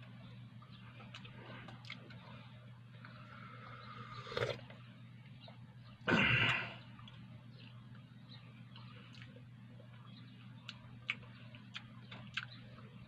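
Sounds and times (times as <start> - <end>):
steady low hum: 0.0 - 13.0
chewing with mouth clicks: 0.6 - 2.3, 8.7 - 12.9.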